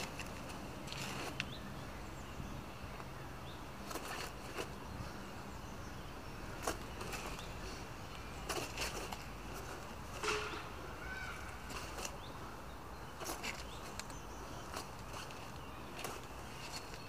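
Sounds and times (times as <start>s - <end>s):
brief scuffs or rustles: 3.8s - 4.8s, 8.4s - 10.7s, 11.4s - 12.2s.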